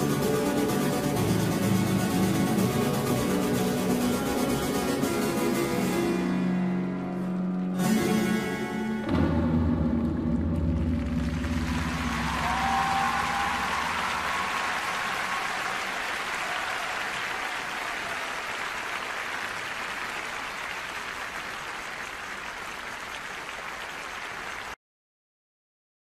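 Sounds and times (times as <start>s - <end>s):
music: 0.0s - 16.3s
audience applauding: 10.6s - 24.8s.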